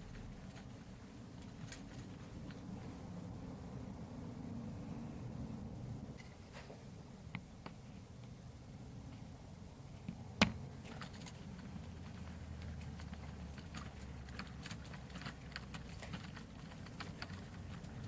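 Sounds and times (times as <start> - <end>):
model train wagons clicking over rails: 10.8 - 18.0.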